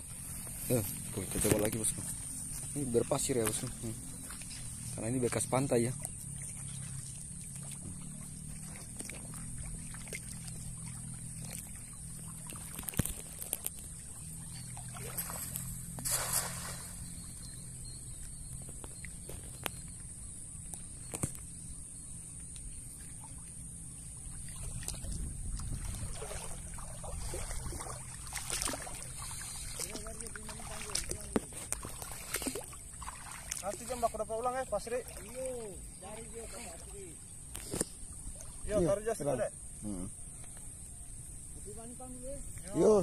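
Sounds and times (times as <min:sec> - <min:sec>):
water sloshing around wading legs: 0:00.0 - 0:39.1
cast net splashing on water: 0:06.3 - 0:17.3, 0:24.4 - 0:34.0
steady high-pitched hiss: 0:11.7 - 0:24.7.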